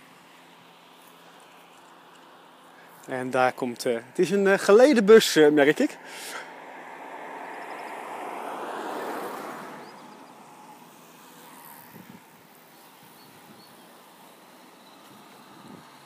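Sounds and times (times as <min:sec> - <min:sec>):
car driving past: 0:06.2 - 0:12.0.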